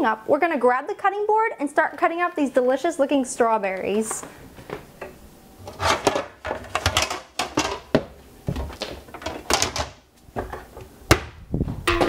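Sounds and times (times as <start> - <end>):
knocks and clatters in cabinet: 5.8 - 11.3.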